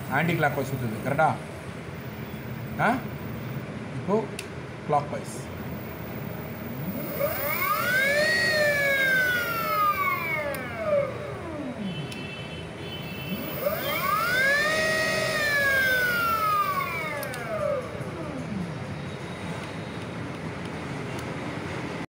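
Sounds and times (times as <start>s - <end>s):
electric motor whine: 5.6s - 12.2s, 13.2s - 18.8s.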